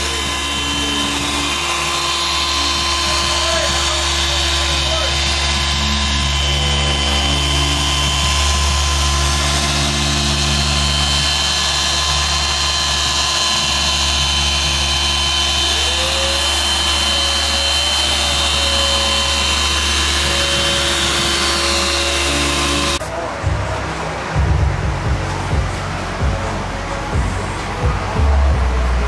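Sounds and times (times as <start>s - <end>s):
orbital polisher whirring: 0.0s - 23.1s.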